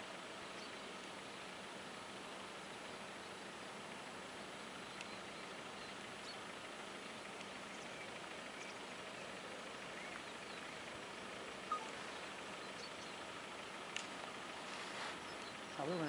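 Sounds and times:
distant drilling rig engine hum: 0.0 - 16.0
faint chirps: 4.2 - 13.9, 14.6 - 16.0.

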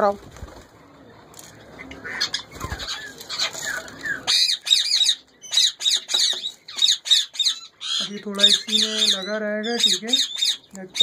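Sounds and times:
parakeet squawking: 1.8 - 11.0
rustling and handling noise: 2.6 - 4.3.

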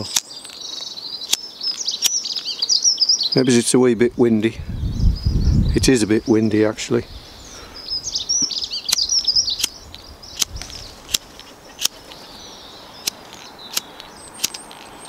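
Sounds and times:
small birds chirping: 0.0 - 15.0
lighter flint wheel clicks: 8.9 - 9.8, 10.4 - 12.2.

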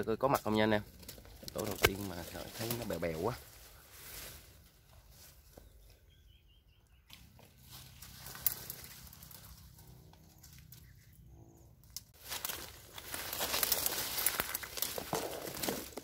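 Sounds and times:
twig snapping: 0.4 - 2.8, 8.2 - 9.2, 11.8 - 16.0
dry brush rustling: 1.1 - 5.7, 7.2 - 10.9, 12.2 - 16.0
bird chirping: 5.4 - 8.2, 10.6 - 11.8.

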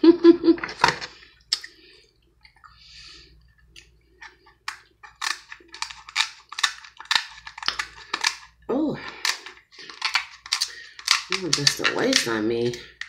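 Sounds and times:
scissors cracking crab shell: 4.7 - 13.0.

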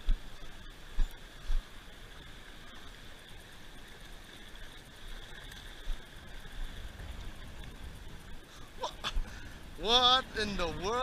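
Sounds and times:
faint steady whine: 0.0 - 11.0
light surf on beach: 0.0 - 11.0
wind gusting on microphone: 4.6 - 11.0.

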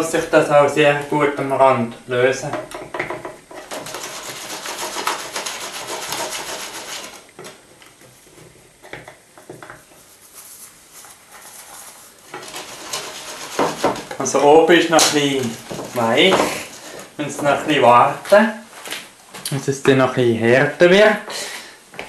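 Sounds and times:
spatula scraping frying pan: 12.1 - 14.2, 15.0 - 17.2.

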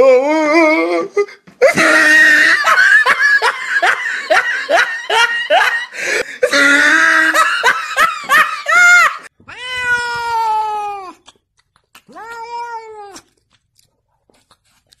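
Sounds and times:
person laughing hard: 1.6 - 9.3
cat meowing: 9.4 - 11.3, 12.1 - 13.3.

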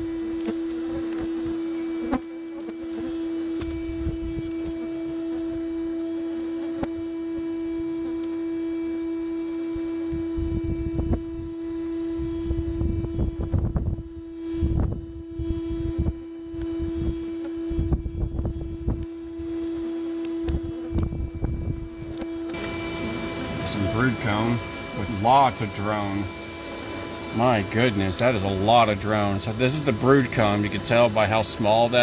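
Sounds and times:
vacuum humming: 0.0 - 32.0.

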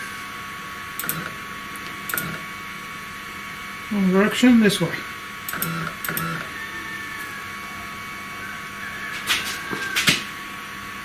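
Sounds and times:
stepper motor whines: 0.0 - 11.0
sharp clicks: 1.0 - 2.4, 5.5 - 6.5.

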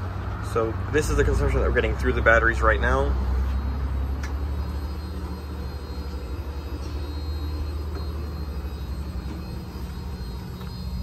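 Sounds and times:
air conditioner humming: 0.0 - 11.0.

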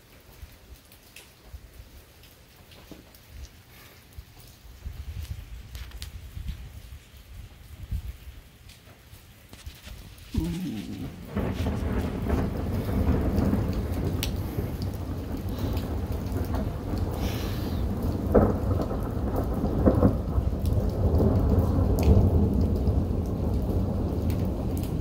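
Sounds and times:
crackling thunder peals: 9.6 - 25.0
thunder rumbling: 9.7 - 25.0.

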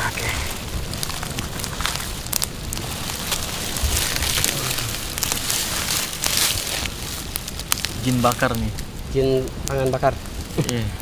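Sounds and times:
campfire crackling and popping: 0.0 - 11.0.

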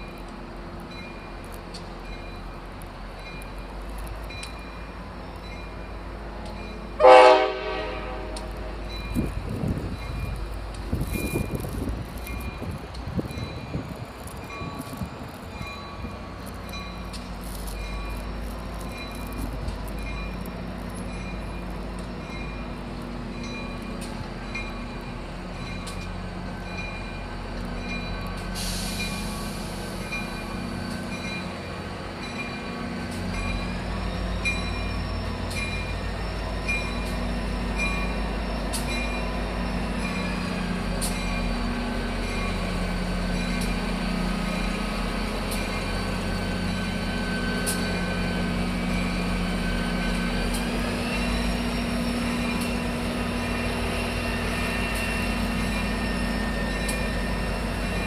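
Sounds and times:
diesel locomotive engine hum: 0.0 - 58.0
high wheel squeal: 33.6 - 58.0.

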